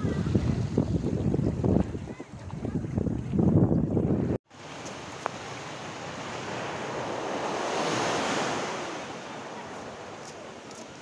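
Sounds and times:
wind on microphone: 0.0s - 4.4s
ocean surf washing: 4.2s - 11.0s.

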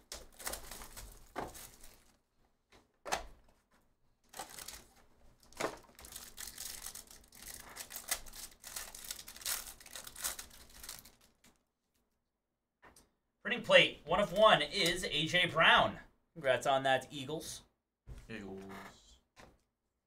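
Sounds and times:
plastic wrapper crinkling: 0.0s - 2.2s, 4.3s - 11.6s.

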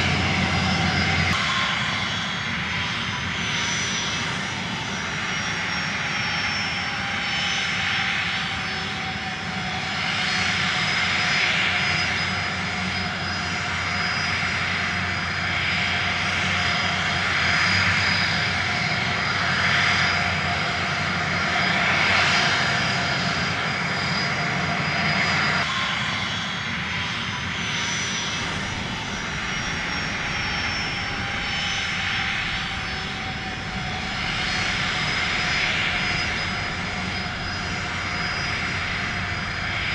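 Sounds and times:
drone motors whining: 24.4s - 39.9s
rushing air: 27.6s - 39.9s.

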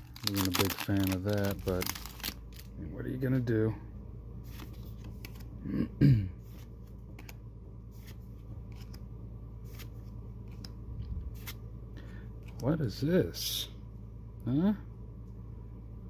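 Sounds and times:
low background hum: 0.0s - 16.0s
trading cards sliding: 9.6s - 11.6s.

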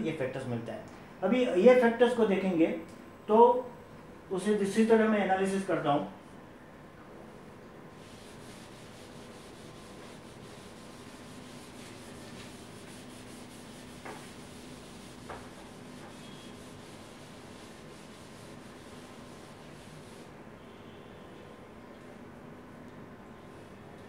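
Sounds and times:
board duster rubbing on board: 8.0s - 20.3s.

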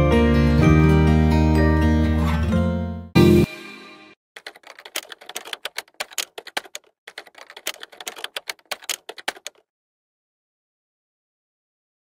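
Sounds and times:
keyboard keystroke clicks: 4.4s - 9.6s.

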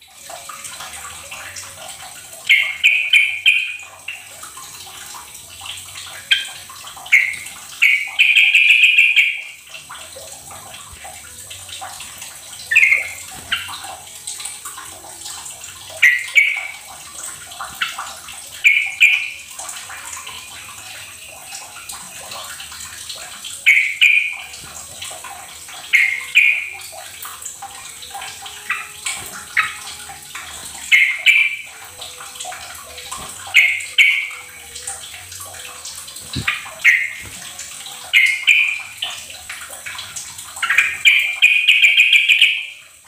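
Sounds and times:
bird calling in bright bursts: 12.6s - 13.8s.

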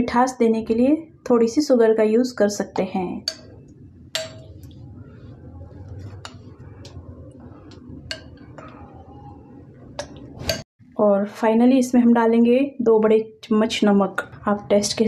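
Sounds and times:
low hum: 3.0s - 10.7s
spoon clinking against glass bowl: 3.2s - 3.6s, 4.2s - 4.6s.

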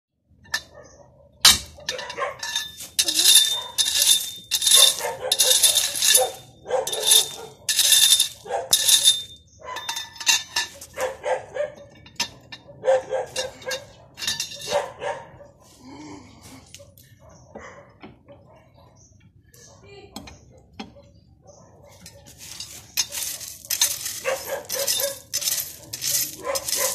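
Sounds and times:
dog barking: 0.6s - 2.4s, 3.5s - 3.8s, 4.8s - 7.7s, 8.4s - 8.7s, 10.9s - 11.9s, 12.6s - 15.8s, 16.8s - 19.9s, 20.6s - 22.4s, 24.2s - 26.9s.

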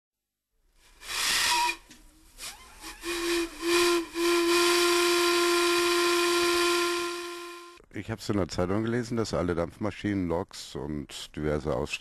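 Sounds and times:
hissing steam: 0.9s - 7.5s
steam whistle: 1.1s - 1.9s, 2.8s - 7.8s.

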